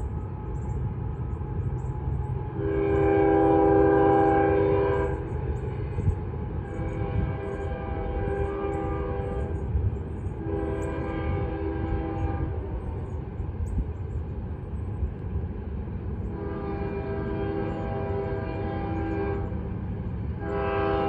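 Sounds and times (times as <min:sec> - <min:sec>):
locomotive air horn blasts: 0:02.6 - 0:05.2, 0:06.6 - 0:09.7, 0:10.4 - 0:12.6, 0:16.3 - 0:19.6, 0:20.4 - 0:21.0.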